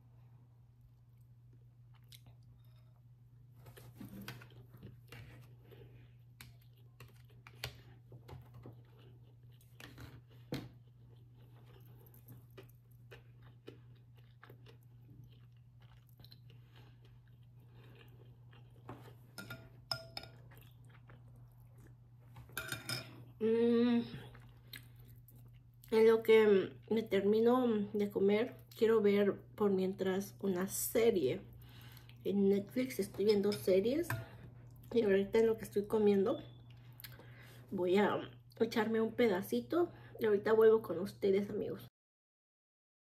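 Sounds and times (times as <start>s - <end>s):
chewing mouth sounds: 8.8s - 19.3s.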